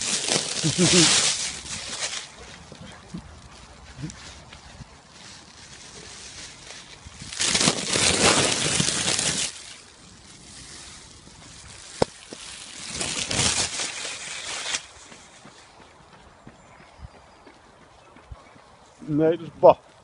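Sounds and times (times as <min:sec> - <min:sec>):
loud rustling: 0:00.0 - 0:02.4, 0:05.3 - 0:09.8.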